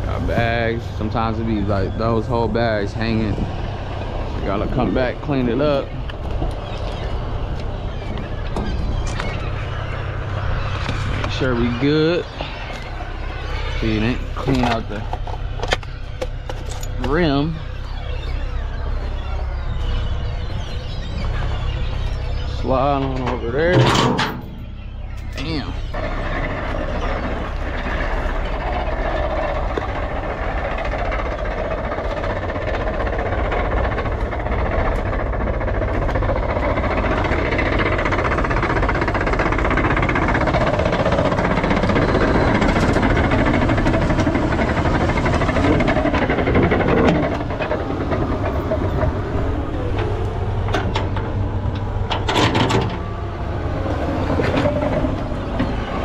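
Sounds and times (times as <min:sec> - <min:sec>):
heavy diesel machinery running: 0:00.0 - 0:56.0
sharp metallic clanks: 0:23.0 - 0:25.5.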